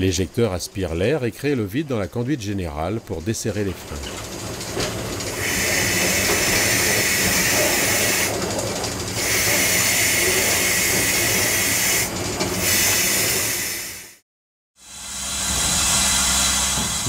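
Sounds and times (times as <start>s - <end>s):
steam ejector hissing: 3.7s - 14.2s.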